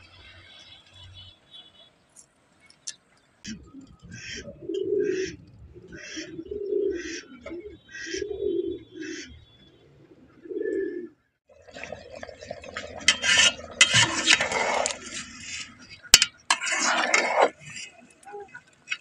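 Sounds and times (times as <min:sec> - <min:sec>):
pigeons cooing: 0:03.5 - 0:11.2
rice bubbling in a pot: 0:11.5 - 0:15.8
metal ladle clinking in pot: 0:12.8 - 0:15.0.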